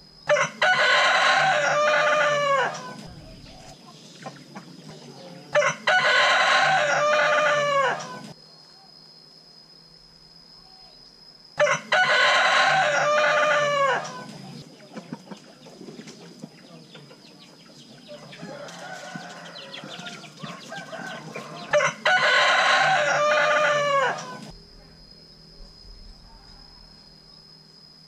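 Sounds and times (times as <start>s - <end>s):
rooster crowing: 0.3s - 3.6s, 5.1s - 8.4s, 11.6s - 14.6s, 18.0s - 24.5s.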